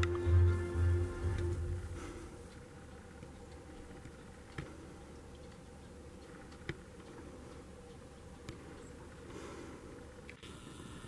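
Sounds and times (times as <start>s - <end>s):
faint background hiss: 0.0s - 11.0s
light sharp clicks: 3.0s - 9.4s.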